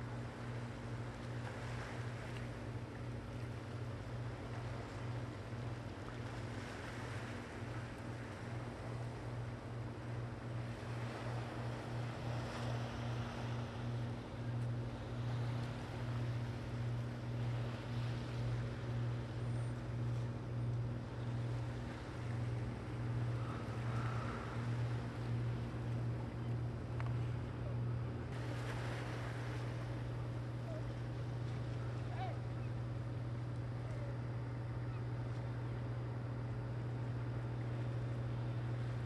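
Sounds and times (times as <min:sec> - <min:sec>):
engine throbbing hum: 0:00.0 - 0:39.0.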